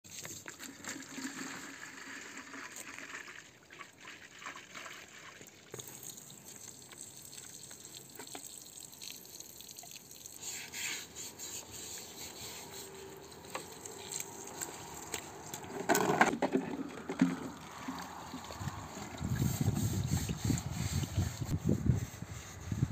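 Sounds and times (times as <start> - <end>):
water splashing from garden hose: 0.1 - 15.8, 17.2 - 21.5.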